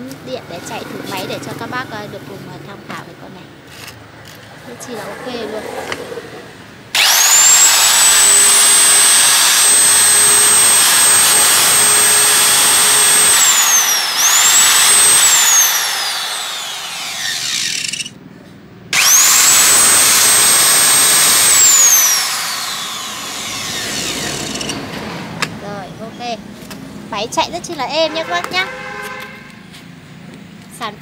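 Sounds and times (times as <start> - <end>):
electric tile cutter motor whine: 7.0 - 18.1, 18.9 - 24.8.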